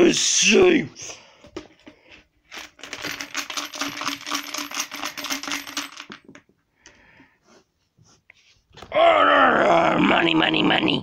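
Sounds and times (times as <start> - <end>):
coins rattling in piggy bank: 2.5 - 6.2.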